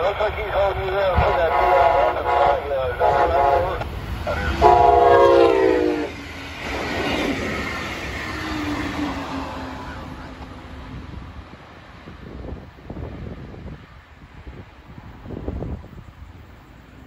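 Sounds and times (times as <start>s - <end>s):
train passing with rail noise: 0.0s - 17.0s
train horn blast: 1.2s - 6.2s.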